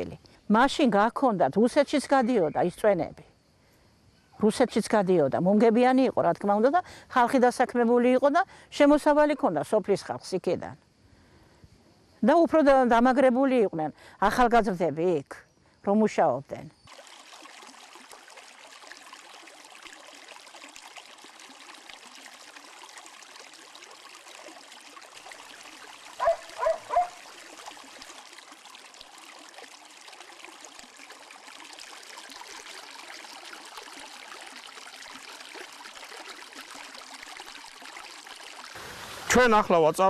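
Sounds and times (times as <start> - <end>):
stream running over rocks: 16.8 - 40.0
dog barking: 26.2 - 27.2.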